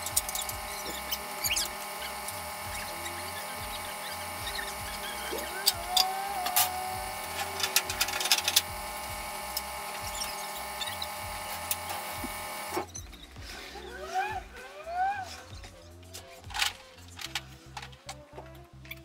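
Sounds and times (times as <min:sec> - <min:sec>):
short rising whines: 0:00.0 - 0:12.9
steady hum: 0:00.0 - 0:17.9.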